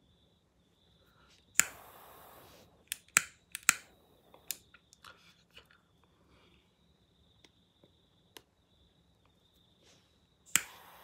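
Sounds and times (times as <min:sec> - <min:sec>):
jet flame hissing: 0:01.5 - 0:03.8, 0:09.8 - 0:11.0
lighter ignition clicks: 0:01.6 - 0:04.7, 0:10.5 - 0:11.0.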